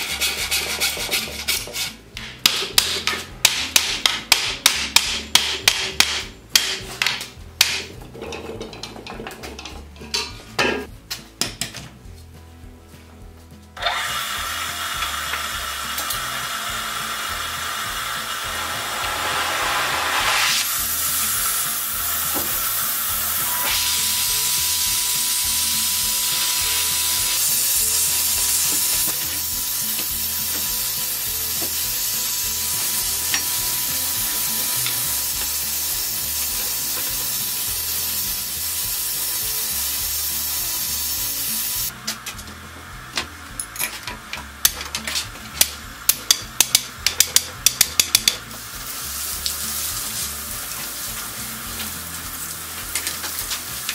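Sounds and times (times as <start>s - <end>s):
hot metal tire sizzling on wood: 13.8s - 53.9s
torch flames hissing: 14.4s - 42.0s, 48.3s - 53.9s
hammer tapping on metal: 45.6s - 48.5s.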